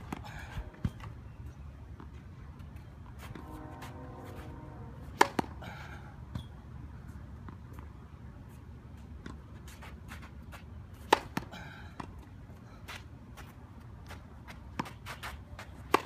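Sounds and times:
tennis ball struck by rackets: 5.0s - 5.6s, 11.0s - 12.1s, 14.7s - 16.0s
tennis ball bouncing on court: 5.1s - 5.6s, 11.0s - 12.2s, 14.5s - 16.0s.

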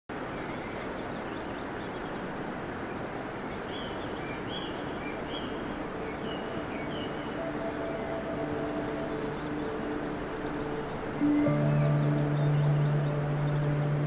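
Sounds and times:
birds chirping: 0.1s - 14.0s
steady rushing noise: 0.1s - 14.0s
low sustained notes: 4.1s - 14.0s.

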